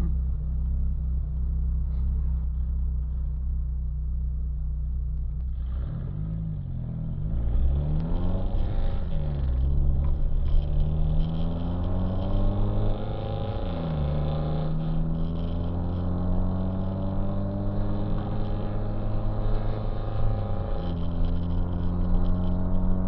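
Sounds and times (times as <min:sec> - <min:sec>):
car engine accelerating through gears: 0:05.3 - 0:23.0.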